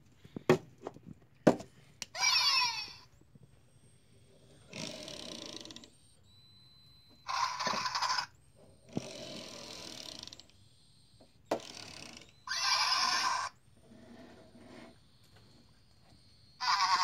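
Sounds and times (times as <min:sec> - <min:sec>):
electronic toy creature cries: 0:02.1 - 0:03.1, 0:07.2 - 0:08.3, 0:12.4 - 0:13.6, 0:16.6 - 0:17.0.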